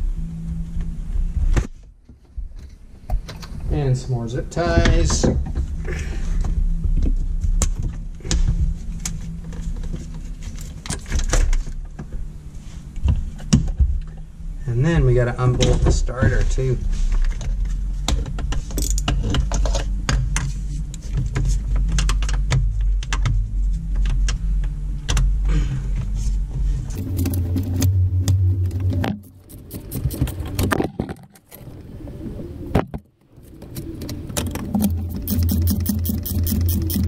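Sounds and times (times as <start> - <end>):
low steady hum: 0.0 - 37.0
socket ratchet clicking: 34.8 - 37.0.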